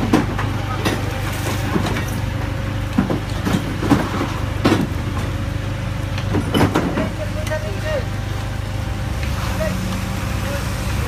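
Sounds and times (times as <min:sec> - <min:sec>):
forklift engine running: 0:00.0 - 0:11.0
sharp metal knocks and clunks: 0:06.2 - 0:07.2.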